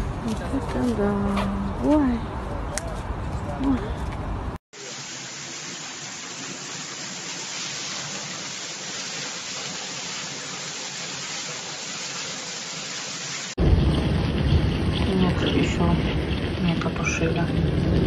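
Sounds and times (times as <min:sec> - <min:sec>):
water gushing and splashing on floor: 0:04.8 - 0:18.0.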